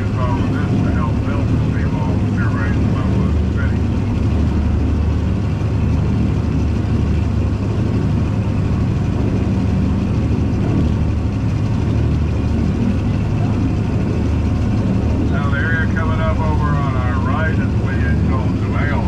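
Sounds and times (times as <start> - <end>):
boat engine droning: 0.0 - 19.0
water wake churning along hull: 0.0 - 19.0.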